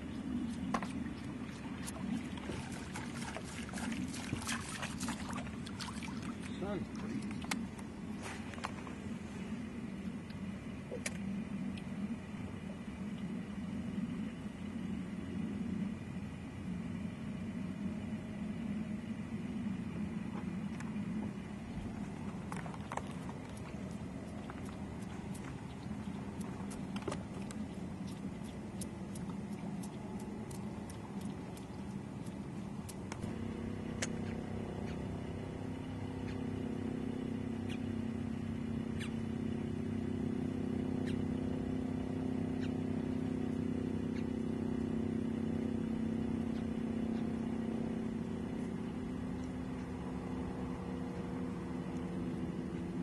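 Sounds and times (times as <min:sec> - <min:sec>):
boat motor humming: 0:00.0 - 0:53.0.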